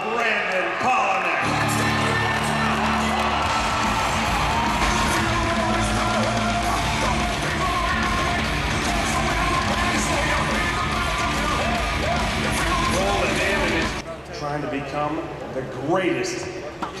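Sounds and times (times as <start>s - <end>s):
crowd yelling: 0.0s - 14.0s
loud rock music with singer: 1.4s - 14.0s.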